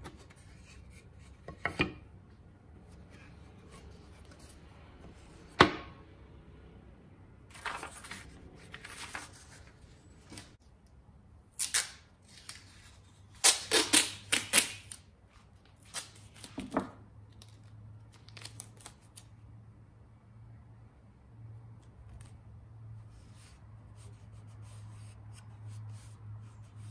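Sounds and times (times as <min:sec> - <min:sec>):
masking tape ripping off roll: 0:11.6 - 0:12.1, 0:13.4 - 0:15.0.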